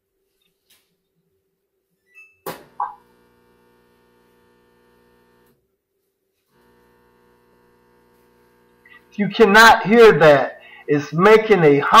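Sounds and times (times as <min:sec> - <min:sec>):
drain pump electrical hum: 0:02.5 - 0:05.6, 0:06.5 - 0:12.0.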